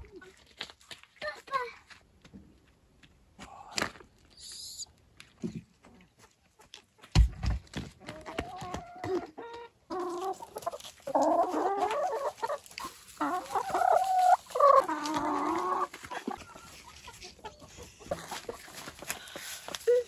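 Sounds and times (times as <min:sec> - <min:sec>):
hens clucking and squawking: 0:08.0 - 0:20.0.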